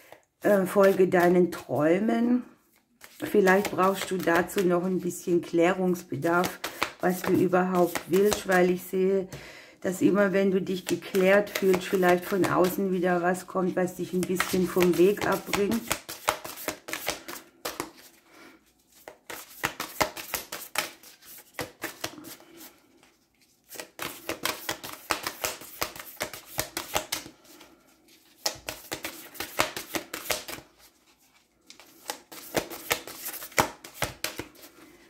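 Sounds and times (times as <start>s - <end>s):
cards being shuffled: 0.6s - 1.7s, 2.7s - 5.0s, 6.4s - 8.8s, 10.8s - 12.8s, 14.1s - 18.2s, 18.8s - 34.8s.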